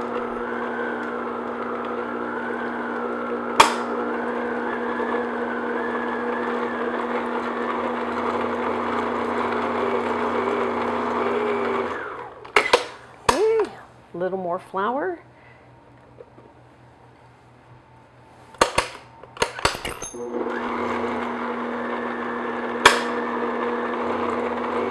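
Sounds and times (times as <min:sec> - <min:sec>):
stand mixer running: 0:00.0 - 0:13.0, 0:20.2 - 0:24.9.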